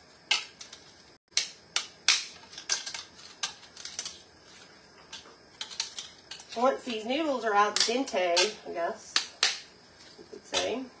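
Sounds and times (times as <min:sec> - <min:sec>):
dry noodles snapping: 0:00.3 - 0:04.1.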